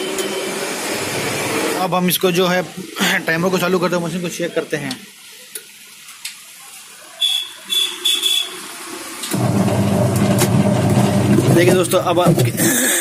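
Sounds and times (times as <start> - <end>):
washing machine motor humming: 9.3 - 12.6.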